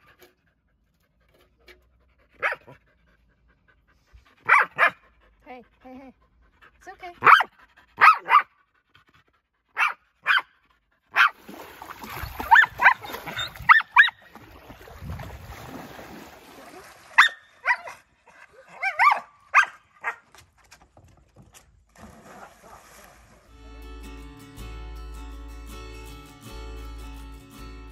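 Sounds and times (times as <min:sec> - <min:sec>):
dog yelping: 0:04.5 - 0:05.0, 0:07.2 - 0:08.5, 0:09.8 - 0:10.5, 0:12.2 - 0:14.3, 0:18.7 - 0:20.2.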